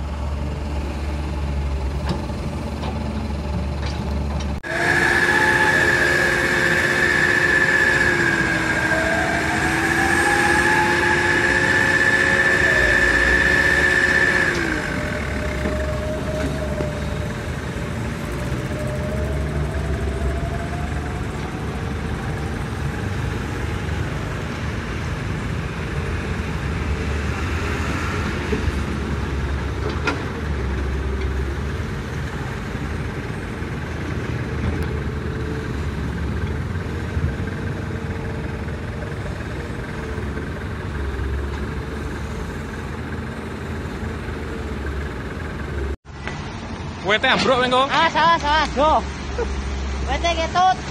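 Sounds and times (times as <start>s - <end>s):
engine rumble: 0.0s - 50.9s
high machine whine: 4.6s - 24.2s.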